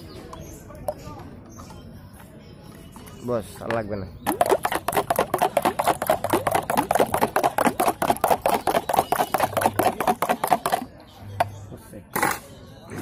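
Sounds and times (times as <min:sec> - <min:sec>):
juice sloshing: 0:04.2 - 0:10.9
spoon clattering in a plastic jug: 0:04.2 - 0:11.6.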